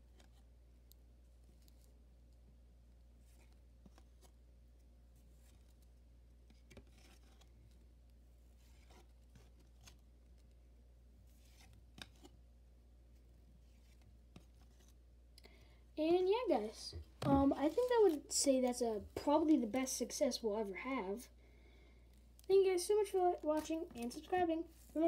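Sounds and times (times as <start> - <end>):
trading cards rustling: 16.4 - 19.9, 22.2 - 25.0.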